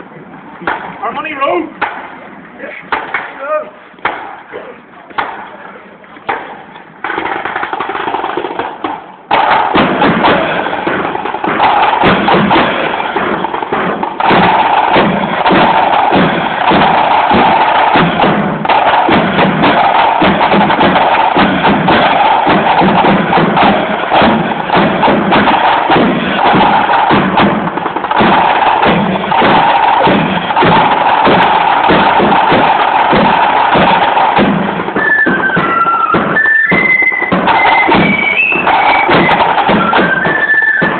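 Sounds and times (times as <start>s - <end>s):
marching snare drums: 0.0s - 40.9s
cymbals: 6.4s - 40.9s.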